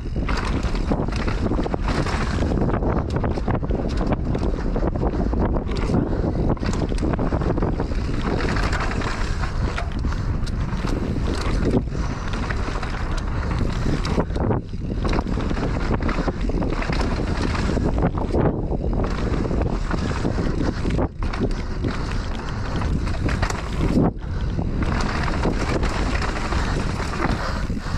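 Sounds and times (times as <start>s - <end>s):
bike rattling over bumps: 0.0s - 27.9s
wind rushing over microphone: 0.0s - 27.9s
tyres crunching over dirt: 5.7s - 27.6s.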